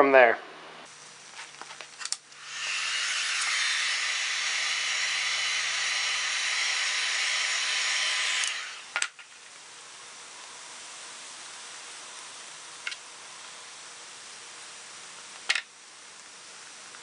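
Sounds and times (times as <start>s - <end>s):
heat gun blowing hot air: 1.5s - 9.2s.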